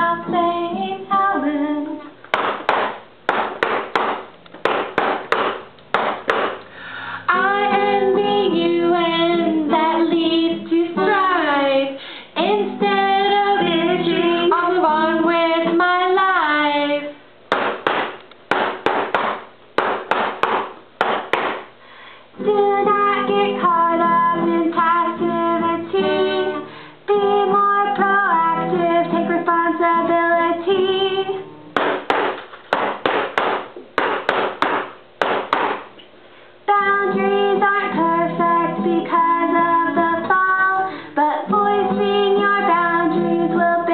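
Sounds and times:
women singing together: 0.0s - 2.1s, 7.3s - 17.1s
acoustic guitar: 0.0s - 43.9s
sticks drummed on hard surface: 2.3s - 6.7s, 17.5s - 21.7s.

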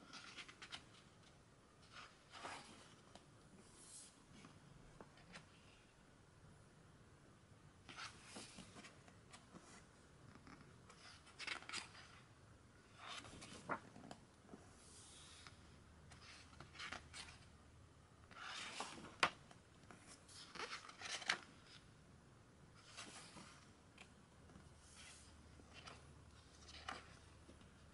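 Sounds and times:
pages turning: 0.1s - 5.5s, 7.9s - 9.8s, 10.9s - 12.3s, 12.9s - 14.2s, 14.8s - 17.5s, 18.3s - 21.8s, 22.8s - 27.7s.

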